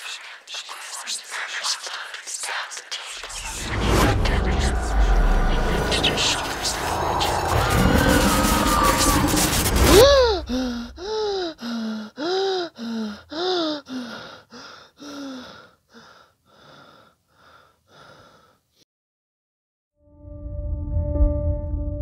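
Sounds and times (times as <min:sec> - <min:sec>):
man panting and gasping: 0:10.0 - 0:18.8.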